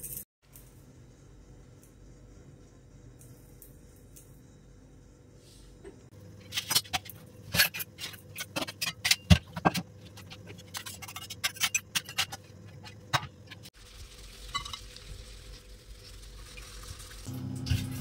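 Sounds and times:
metal utensils clinking: 6.5s - 13.7s.

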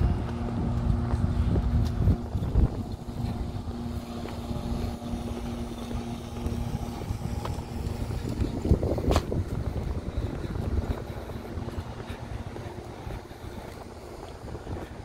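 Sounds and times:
low traffic rumble: 0.0s - 15.0s
steady low hum: 0.0s - 15.0s
wind buffeting microphone: 0.0s - 15.0s.

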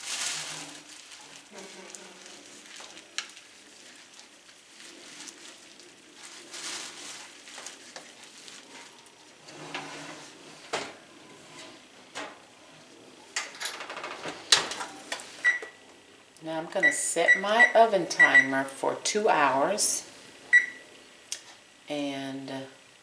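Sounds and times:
oven door shutting: 9.4s - 12.6s, 13.3s - 15.3s
oven electronic beep: 15.4s - 15.8s, 16.8s - 18.7s, 20.5s - 20.8s.

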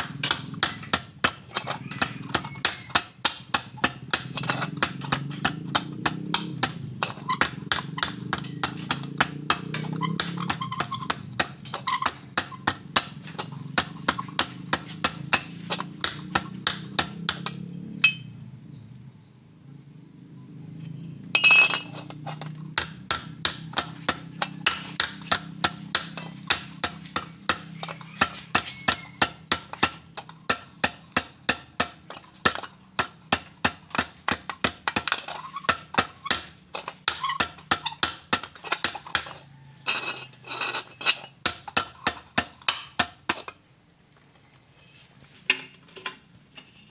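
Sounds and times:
hammer striking steel tube: 0.0s - 1.4s, 22.8s - 39.4s.

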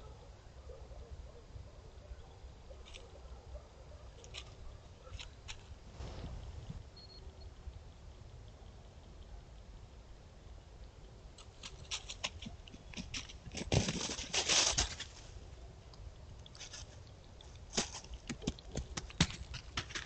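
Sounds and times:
animal footfalls on dry leaves: 11.5s - 15.4s, 16.6s - 20.0s
leaves rustling: 11.5s - 15.4s.

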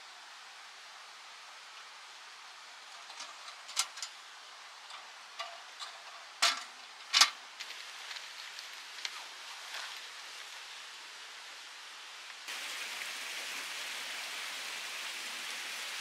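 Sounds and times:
steady soft hiss: 0.0s - 16.0s
sharp clicks and knocks: 4.9s - 7.4s.

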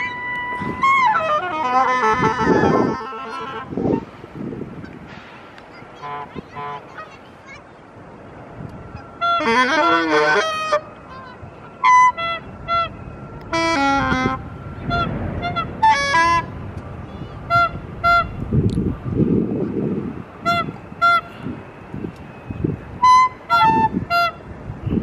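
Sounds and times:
geese honking: 0.0s - 4.0s, 8.9s - 18.4s, 20.4s - 21.5s, 23.0s - 24.4s
wind rumble on microphone: 0.0s - 7.0s, 7.9s - 25.0s.

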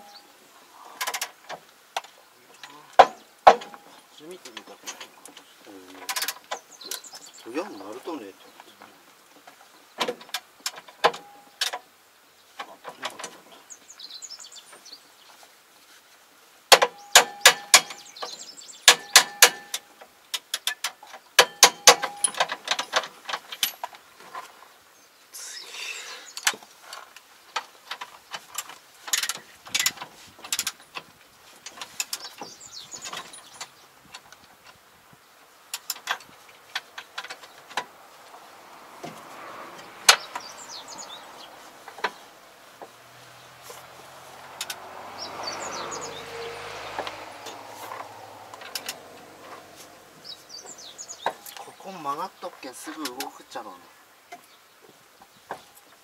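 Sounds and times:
hammer striking steel: 18.9s - 19.8s
light tool clinks: 21.4s - 24.0s.

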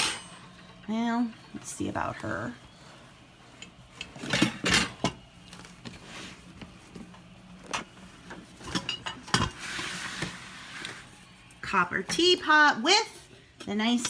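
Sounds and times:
rustling: 1.6s - 11.6s
objects knocking and clattering: 3.9s - 5.2s, 7.6s - 9.6s.

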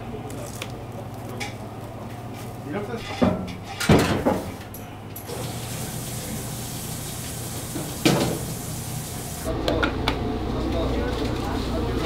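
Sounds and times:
steady hiss of running water: 5.3s - 9.5s.

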